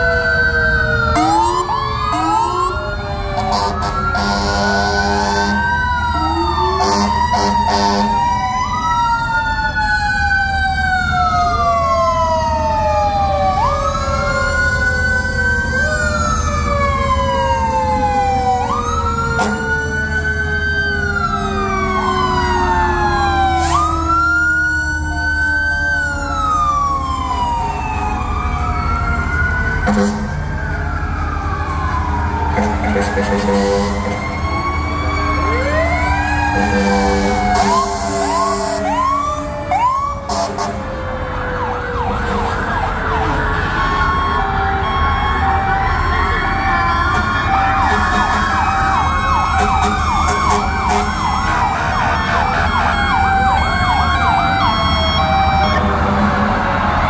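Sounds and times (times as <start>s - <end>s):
mechanical siren winding down: 0.0s - 42.1s, 43.8s - 57.0s
fire truck sirens wailing: 0.0s - 57.0s
air horn blasts: 3.4s - 5.6s, 6.8s - 8.3s, 29.8s - 30.4s, 32.6s - 34.2s, 36.5s - 39.0s, 40.3s - 40.9s, 47.2s - 49.0s, 49.6s - 53.1s.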